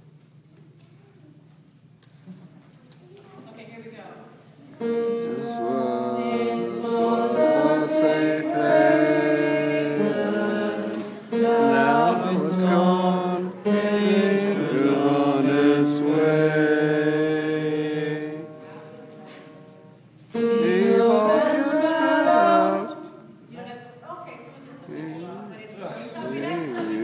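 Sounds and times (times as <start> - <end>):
men singing in close harmony: 4.8 - 18.6, 20.4 - 23.3.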